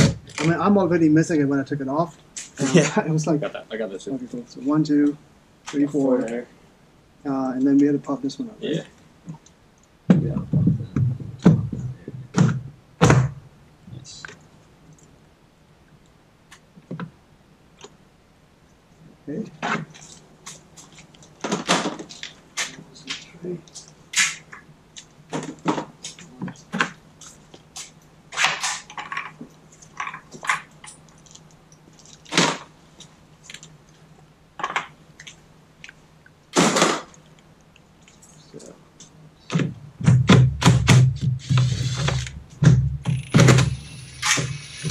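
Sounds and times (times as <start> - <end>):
faint steady hum: 0.0 - 44.9
dull thunks of plastic trim: 10.1 - 13.4.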